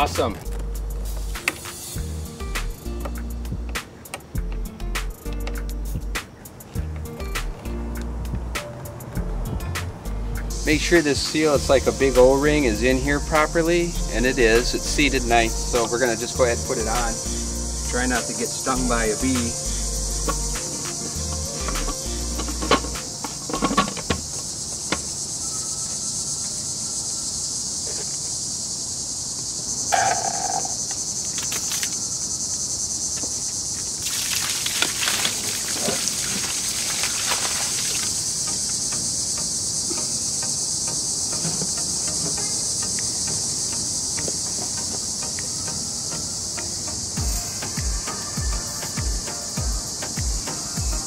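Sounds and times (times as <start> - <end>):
insects chorus: 0.0 - 51.0
water splashing from hose: 31.2 - 32.1, 33.8 - 39.1.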